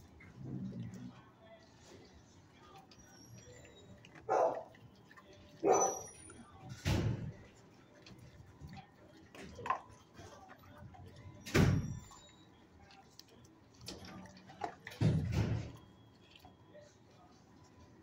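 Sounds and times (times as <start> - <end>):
dog barking: 4.2 - 4.8, 5.6 - 6.2.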